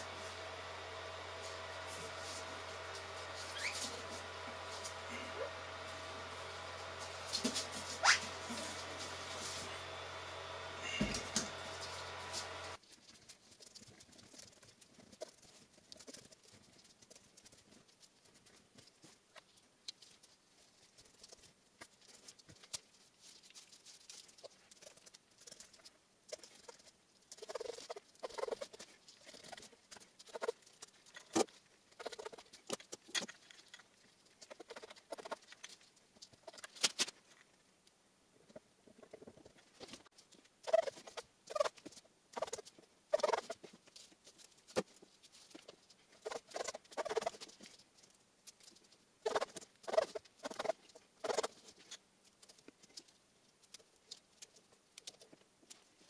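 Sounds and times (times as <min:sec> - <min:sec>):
machine hum: 0:00.0 - 0:12.8.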